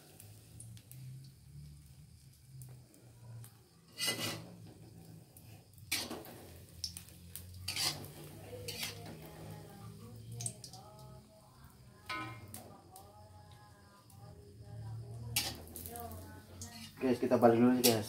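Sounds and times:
omelette frying: 0:00.0 - 0:18.0
metal spatula scraping a wok: 0:03.8 - 0:09.7, 0:12.1 - 0:12.5, 0:15.3 - 0:18.0.

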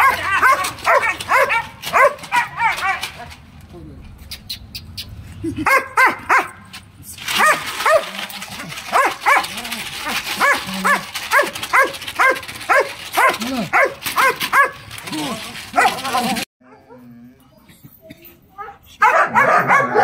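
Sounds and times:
dog barking: 0:00.0 - 0:03.0, 0:05.6 - 0:06.6, 0:08.9 - 0:09.5, 0:10.4 - 0:14.8, 0:19.0 - 0:20.0.

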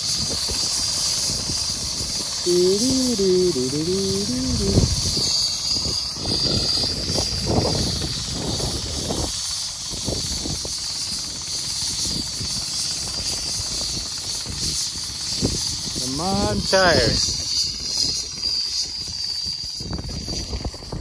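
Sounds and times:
wind buffeting microphone: 0:04.4 - 0:10.8, 0:17.0 - 0:21.0.

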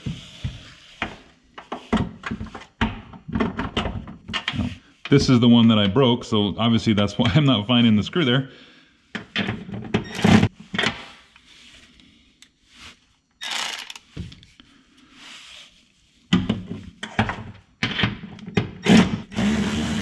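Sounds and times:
electric ratchet running: 0:13.4 - 0:14.0, 0:18.9 - 0:20.0.

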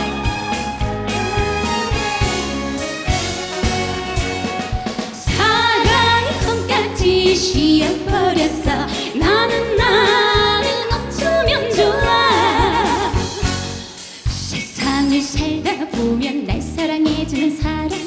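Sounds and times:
band with steady drum beat: 0:00.0 - 0:18.0
women singing a duet: 0:05.3 - 0:13.6, 0:14.6 - 0:18.0.

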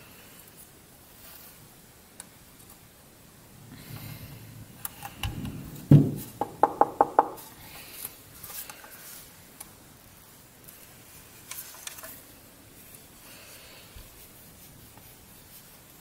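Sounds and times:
heavy thump: 0:05.2 - 0:07.3
light clicks and rubbing: 0:10.7 - 0:13.0.

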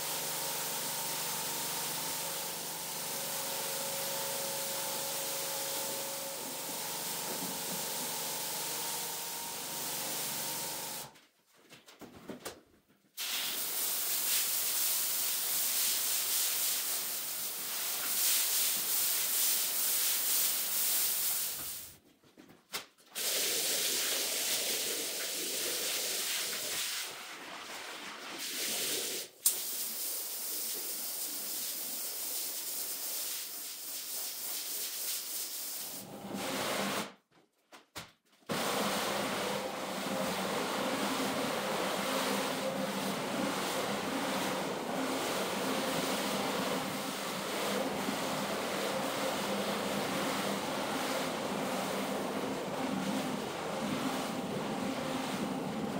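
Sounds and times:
pressure washer spraying water: 0:00.0 - 0:11.1.

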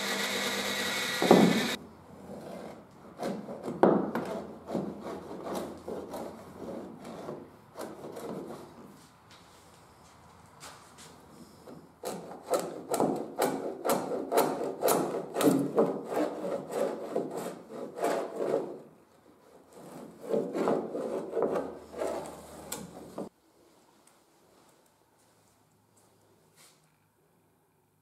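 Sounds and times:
hand plane shaving wood: 0:00.0 - 0:08.8, 0:12.0 - 0:23.1.

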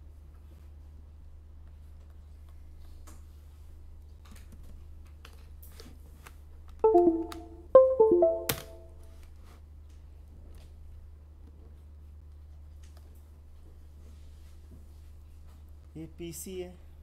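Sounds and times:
chime of pitched notes: 0:06.9 - 0:08.9.

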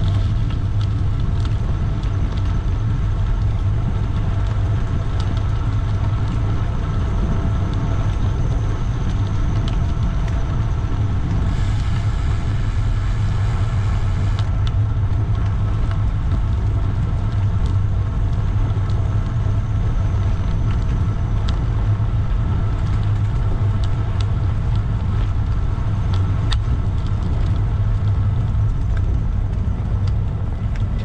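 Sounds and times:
low rumble of road traffic: 0:00.0 - 0:31.0
bright hiss: 0:11.3 - 0:14.5.

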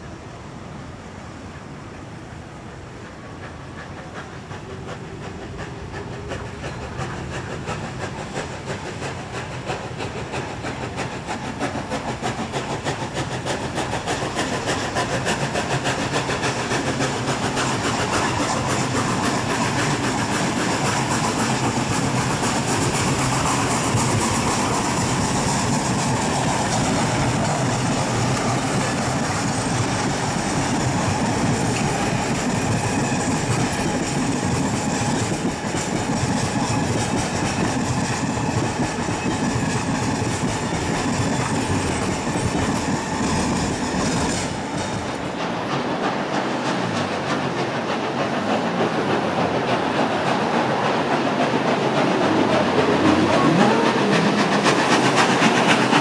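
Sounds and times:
steam locomotive exhaust beats: 0:00.0 - 0:56.0
carriage wheels clicking over rail joints: 0:04.9 - 0:56.0.

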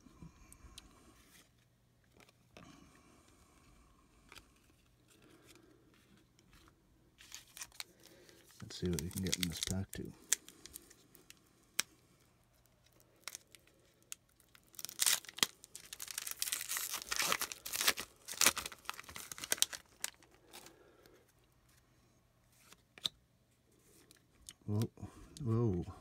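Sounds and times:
wrapper tearing and crinkling: 0:07.2 - 0:11.0, 0:12.8 - 0:20.7.

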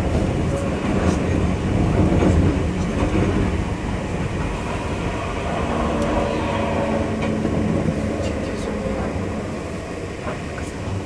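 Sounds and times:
train wheels rumbling: 0:00.0 - 0:11.0.

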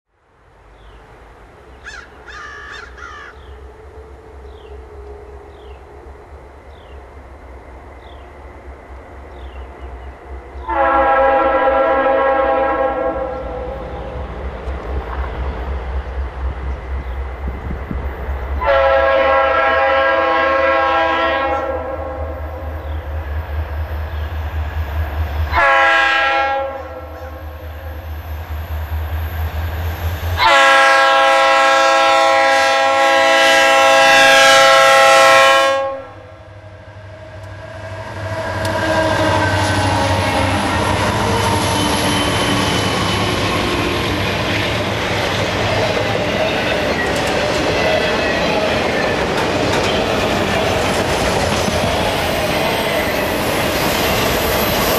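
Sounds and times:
train rumble: 0:00.4 - 0:54.9
locomotive horn blasts: 0:10.6 - 0:14.0, 0:18.6 - 0:22.7, 0:25.5 - 0:27.6, 0:30.4 - 0:36.5, 0:38.3 - 0:41.0.

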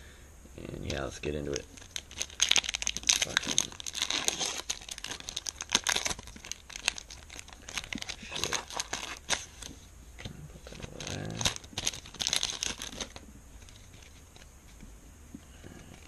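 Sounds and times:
foil wrapper crinkling: 0:01.4 - 0:09.7, 0:10.6 - 0:14.5.

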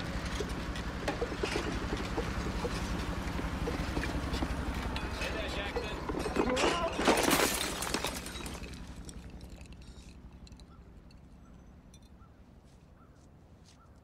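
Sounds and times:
glass bottles clattering and breaking: 0:04.9 - 0:11.2.

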